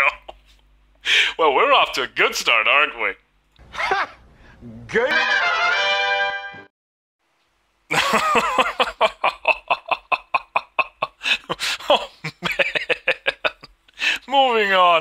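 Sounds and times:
person laughing hard: 0:00.0 - 0:00.6, 0:03.7 - 0:04.2, 0:07.9 - 0:13.7.

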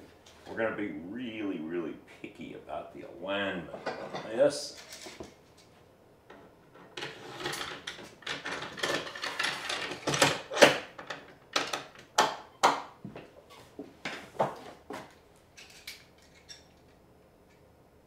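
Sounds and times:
rail scraping on wood: 0:06.8 - 0:07.8.

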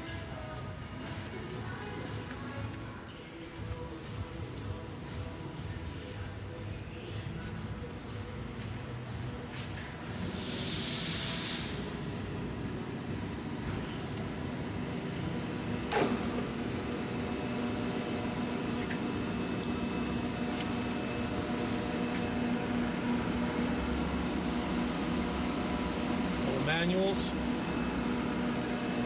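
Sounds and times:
machine electrical hum: 0:00.0 - 0:29.0
short hiss: 0:10.2 - 0:11.8.

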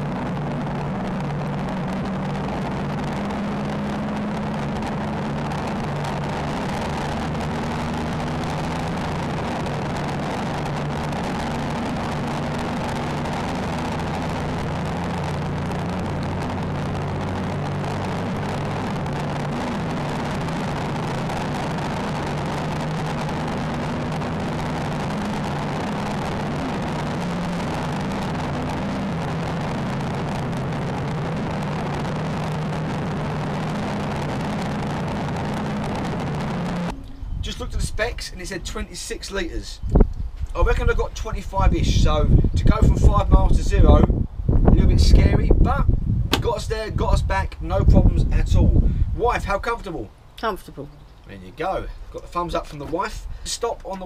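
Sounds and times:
motorcycle engine low hum: 0:00.0 - 0:54.0
wind and road noise: 0:00.0 - 0:54.0.

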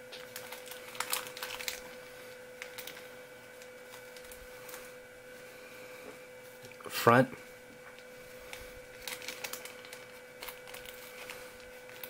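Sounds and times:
faint steady hum: 0:00.0 - 0:12.0
plastic bags crinkling: 0:00.1 - 0:05.0, 0:07.9 - 0:12.0.

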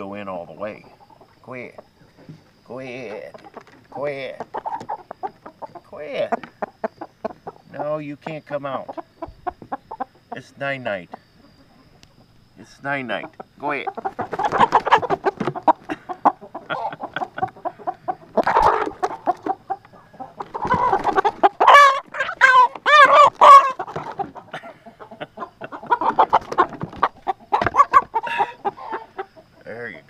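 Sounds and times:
hens clucking and squawking: 0:00.0 - 0:30.0.

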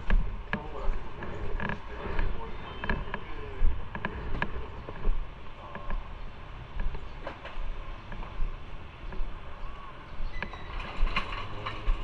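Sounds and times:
sharp clicks and rattles: 0:00.0 - 0:03.3, 0:03.9 - 0:06.1, 0:10.4 - 0:12.0
motorcycle engine rumbling: 0:00.0 - 0:12.0.

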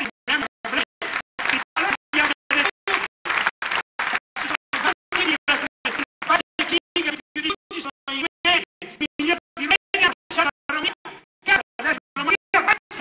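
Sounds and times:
amplified man talking: 0:04.4 - 0:13.0.

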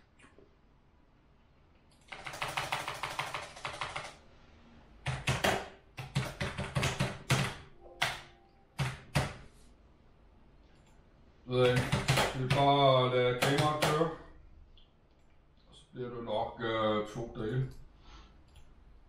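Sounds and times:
computer keyboard typing: 0:01.9 - 0:04.2, 0:05.0 - 0:09.4, 0:11.6 - 0:12.7, 0:13.4 - 0:14.0.

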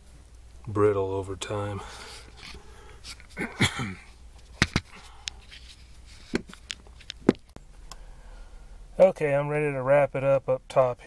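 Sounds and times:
rustling: 0:01.7 - 0:08.0.

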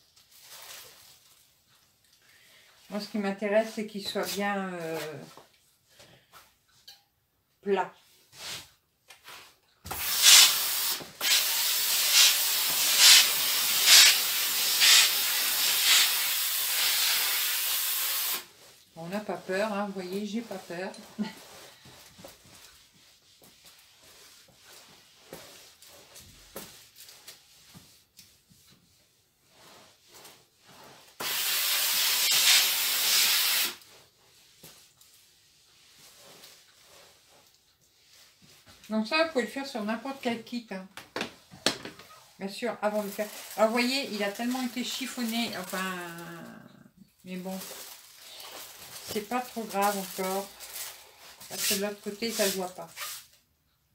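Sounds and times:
iron rubbing over towel: 0:08.3 - 0:40.5, 0:42.2 - 0:46.5, 0:47.3 - 0:53.3
steam iron hissing: 0:09.9 - 0:18.5, 0:31.2 - 0:33.8.

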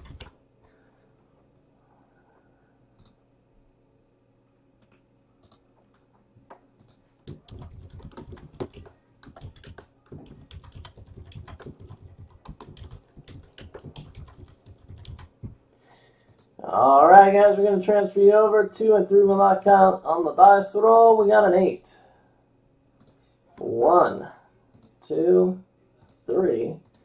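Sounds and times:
typing on computer keyboard: 0:00.0 - 0:00.3, 0:06.8 - 0:15.6.

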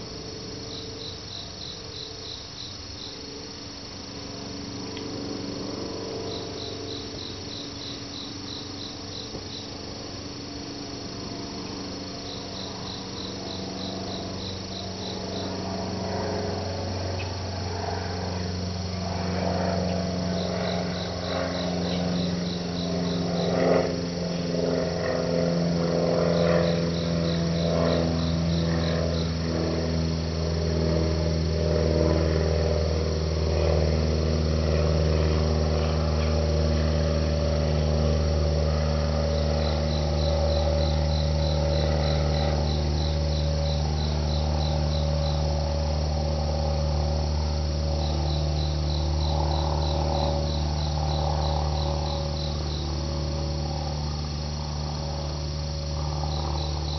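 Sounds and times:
insect chirping: 0:00.0 - 0:56.9
low hum: 0:00.0 - 0:56.9.

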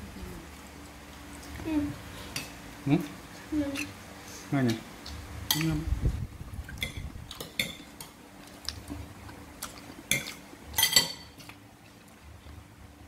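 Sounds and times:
metal spoon clinking on ceramic dishes: 0:10.1 - 0:11.4.

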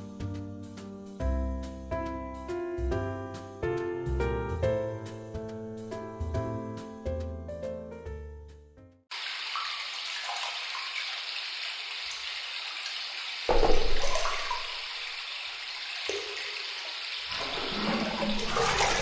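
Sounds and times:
running water rushing: 0:09.1 - 0:19.0.

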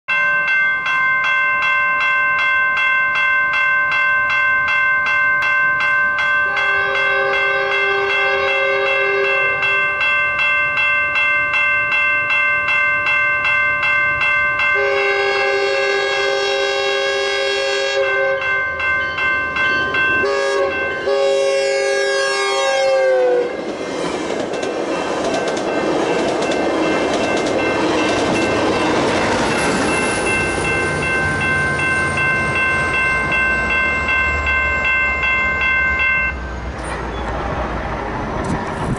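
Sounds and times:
crossing warning bells ringing: 0:00.1 - 0:38.9
train wheel and rail noise: 0:00.1 - 0:38.9
train horn blasts: 0:06.4 - 0:10.0, 0:14.8 - 0:18.6, 0:20.2 - 0:23.6.

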